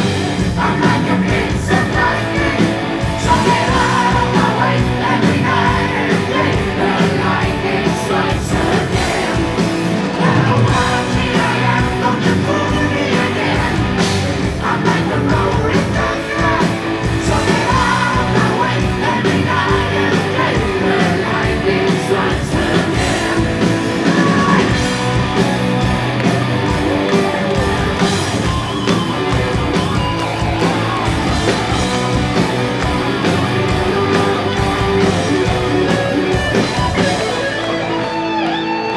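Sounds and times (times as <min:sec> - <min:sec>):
person singing lead vocal: 0:00.0 - 0:25.0
backing vocals: 0:00.0 - 0:37.6
heavy metal band playing live: 0:00.0 - 0:38.9.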